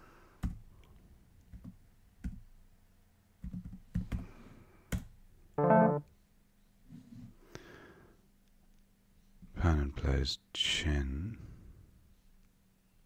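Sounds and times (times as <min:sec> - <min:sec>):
bright electronic chime: 0:05.6 - 0:06.0.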